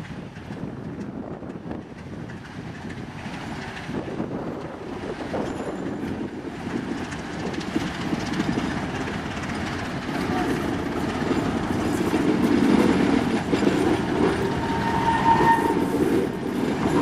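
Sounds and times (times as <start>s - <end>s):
diesel locomotive moving slowly: 0.0s - 17.0s.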